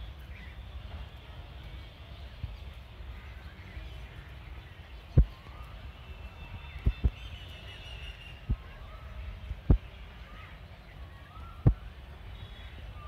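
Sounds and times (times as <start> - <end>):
faint bird chirps: 3.2 - 13.0.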